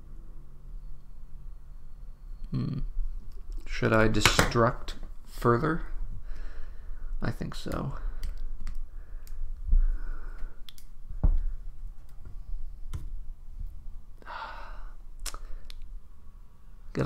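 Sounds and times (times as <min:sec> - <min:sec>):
person breathing: 0:06.1 - 0:07.2, 0:07.9 - 0:11.8, 0:14.2 - 0:16.0
small clicks: 0:07.6 - 0:09.4, 0:10.6 - 0:10.9.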